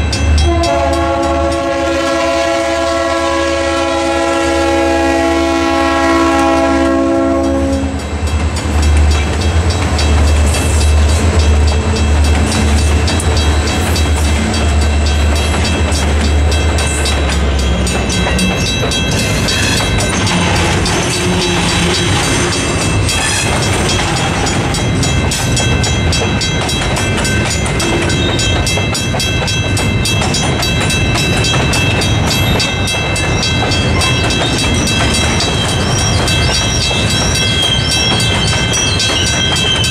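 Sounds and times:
crossing bell ringing: 0.0s - 39.9s
diesel locomotive engine: 0.0s - 39.9s
train horn: 0.4s - 8.1s
train wheels clicking: 5.6s - 39.9s.

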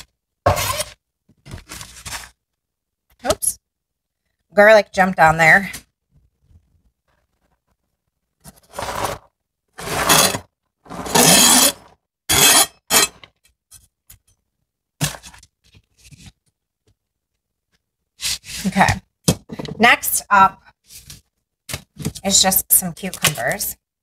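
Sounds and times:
knife scraping on cutting board: 9.8s - 13.2s.

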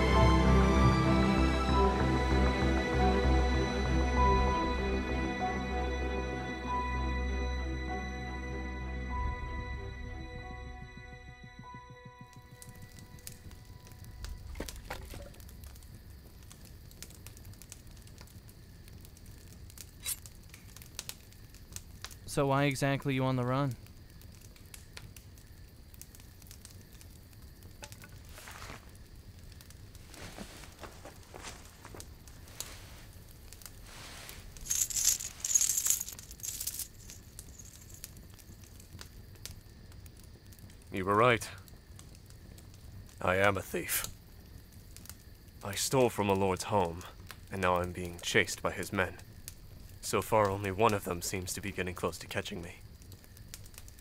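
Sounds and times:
low fire rumble: 9.3s - 54.0s
campfire crackling and popping: 11.0s - 54.0s
coins jingling and clinking: 34.4s - 38.1s.

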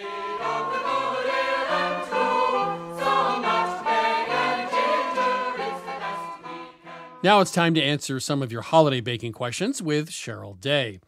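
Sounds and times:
choir singing held notes: 0.0s - 8.0s.

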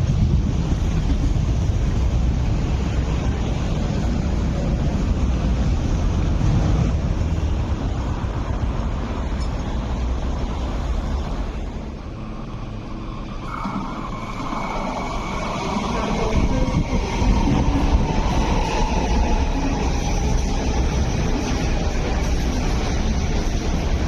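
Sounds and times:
electric train rumbling on track: 0.0s - 24.0s
train whine: 0.0s - 24.0s.

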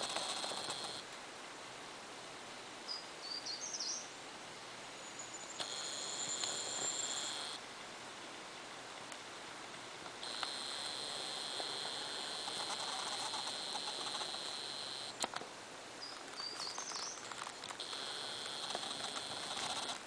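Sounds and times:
high-pitched buzz: 0.0s - 1.0s, 5.6s - 7.6s, 10.2s - 15.2s, 17.8s - 20.0s
bird chirping: 5.0s - 7.6s, 16.0s - 20.0s
click: 10.2s - 10.9s, 12.4s - 15.4s.

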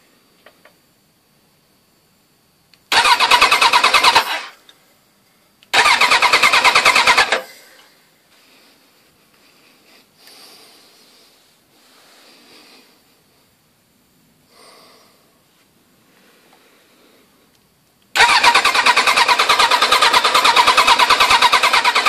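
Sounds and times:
motorcycle engine cranking on starter: 2.9s - 4.6s, 5.7s - 7.8s, 18.2s - 22.0s.

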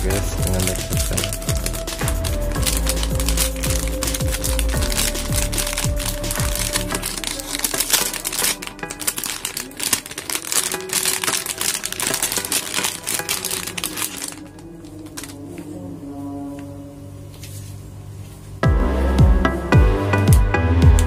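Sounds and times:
plastic packaging crinkling: 0.0s - 15.8s
background music: 0.0s - 16.0s, 18.6s - 21.0s.

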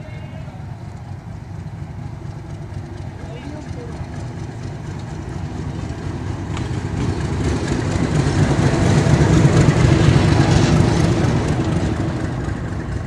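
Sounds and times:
diesel locomotive engine rumble: 0.0s - 13.0s
passenger coaches rolling past: 0.0s - 13.0s.

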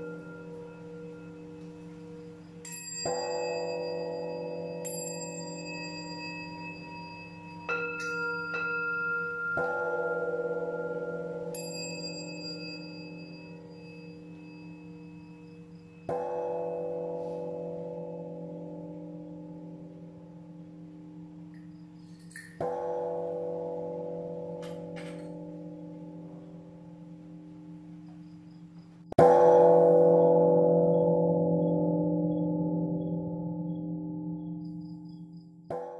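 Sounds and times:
large bell ringing: 0.0s - 35.9s
small hand bell taps: 21.5s - 22.6s
large bell deep strikes: 29.2s - 35.0s.

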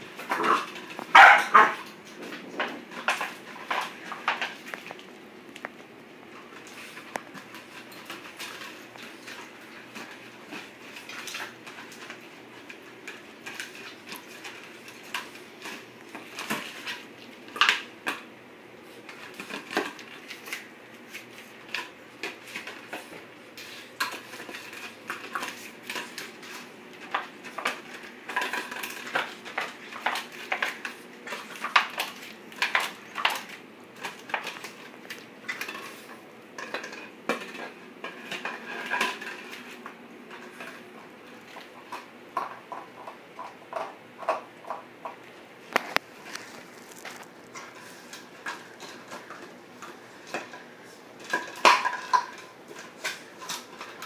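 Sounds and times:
plastic bottle crinkling on tile: 0.1s - 5.8s, 45.6s - 54.0s.

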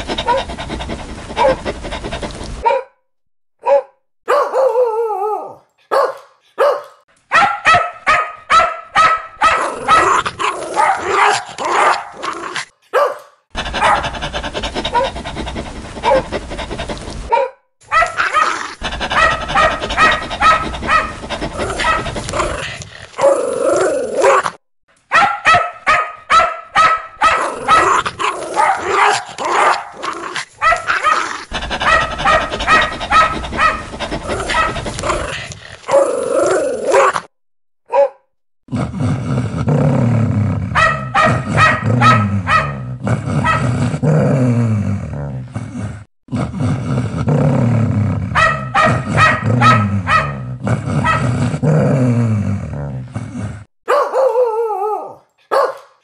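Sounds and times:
dogs barking: 0.0s - 2.9s, 3.6s - 4.8s, 5.8s - 12.2s, 12.9s - 23.3s, 25.1s - 36.0s, 40.7s - 43.7s, 48.3s - 51.3s, 53.9s - 54.5s, 55.4s - 56.0s.

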